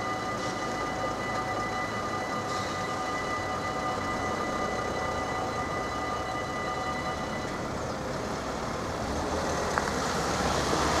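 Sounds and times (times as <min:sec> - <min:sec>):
steady high tones: 0:00.0 - 0:08.4
van tyres on wet road: 0:00.0 - 0:11.0.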